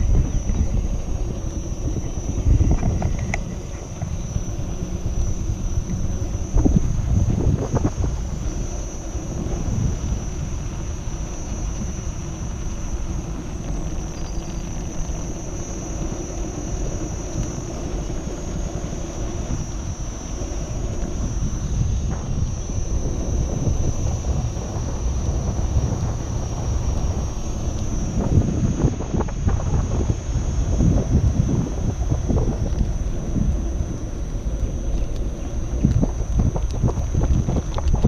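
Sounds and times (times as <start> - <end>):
thin high whine: 0.0 - 38.0
wind buffeting microphone: 0.0 - 38.0.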